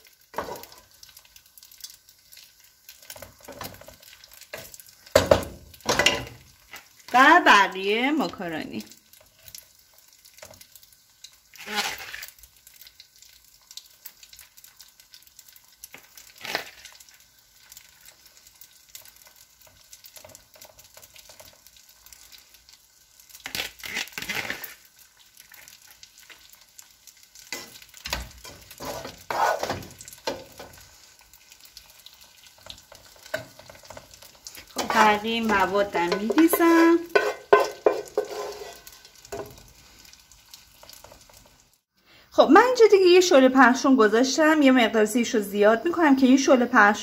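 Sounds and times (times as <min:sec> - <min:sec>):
utensil scraping a pot: 0:28.4 - 0:30.4, 0:33.3 - 0:39.4.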